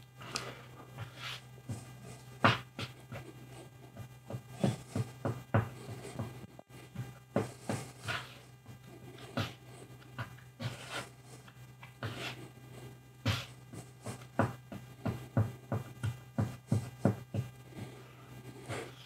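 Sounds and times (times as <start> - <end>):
steady low hum: 0.0 - 19.0
hand tool scraping filler: 10.6 - 12.4.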